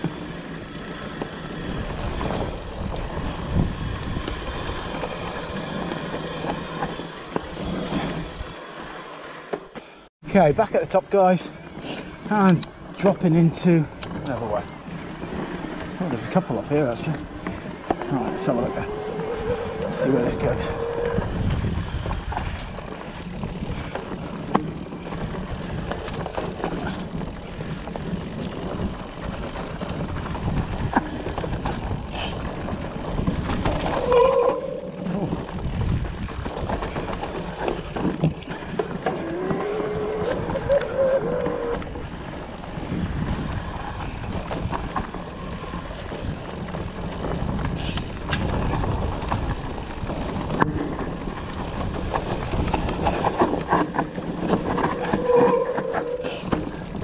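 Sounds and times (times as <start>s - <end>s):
tyres rumbling on dirt: 0.0s - 57.0s
bike knocks and rattles: 21.0s - 57.0s.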